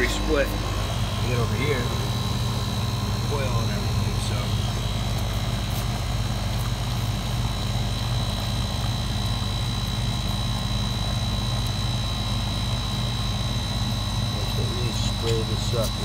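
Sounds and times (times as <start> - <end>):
air conditioner unit humming: 0.0 - 16.0.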